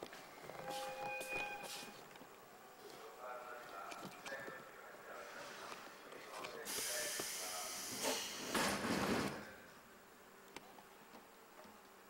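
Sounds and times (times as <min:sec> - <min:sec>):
shrill locomotive whistle: 0:00.6 - 0:02.0.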